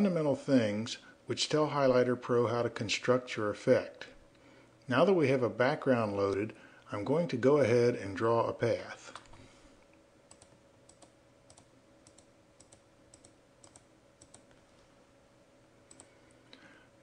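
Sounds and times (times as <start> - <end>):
low steady hum: 0.0 - 17.0
computer mouse clicks: 10.3 - 14.6, 15.9 - 16.2.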